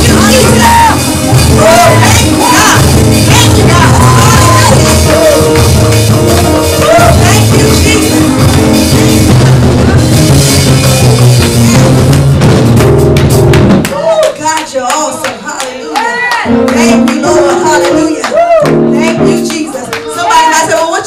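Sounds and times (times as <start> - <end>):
person singing: 0.0 - 9.4
keyboard: 0.0 - 13.9, 16.5 - 21.0
bass: 0.0 - 14.5
drums: 0.0 - 14.6.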